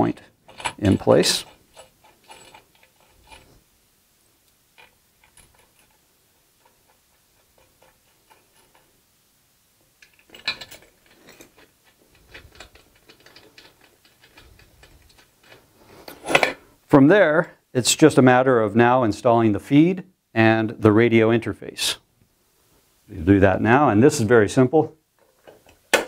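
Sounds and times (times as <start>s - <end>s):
metallic clicks and rattles: 0.4s - 3.6s, 4.7s - 9.0s, 10.0s - 16.5s.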